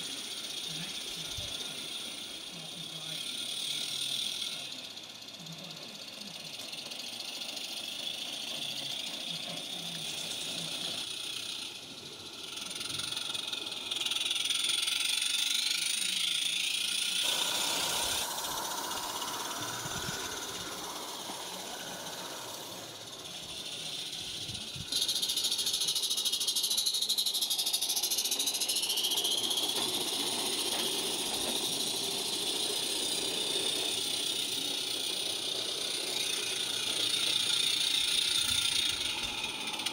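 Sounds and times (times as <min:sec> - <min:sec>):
model train wheels on rails: 0:00.0 - 0:39.9
steam hissing: 0:00.0 - 0:39.9.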